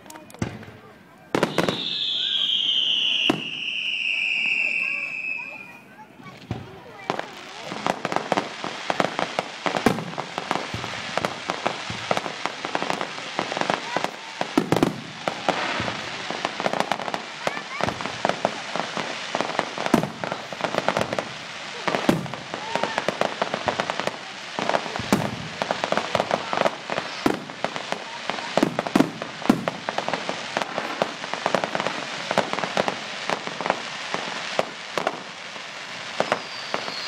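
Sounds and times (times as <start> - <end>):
firework crackling: 0.0 - 37.0
firework shells bursting: 6.3 - 17.2, 28.6 - 35.3, 36.1 - 37.0.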